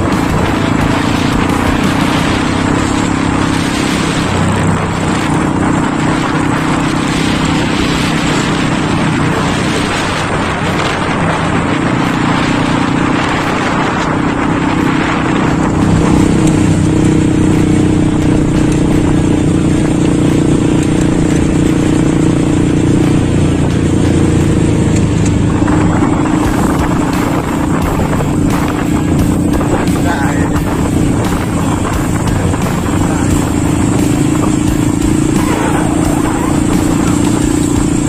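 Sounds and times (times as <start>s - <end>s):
rushing wind: 0.0s - 38.0s
small motorcycle engine running: 0.0s - 38.0s.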